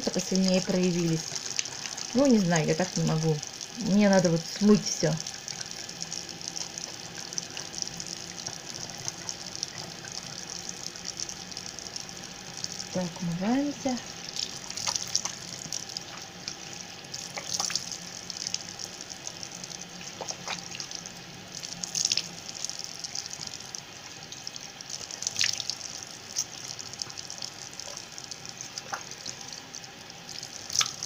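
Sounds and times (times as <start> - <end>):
tap water running into a sink: 0.0 - 31.0
water splashing on face: 14.2 - 23.7, 24.3 - 29.6, 30.3 - 31.0.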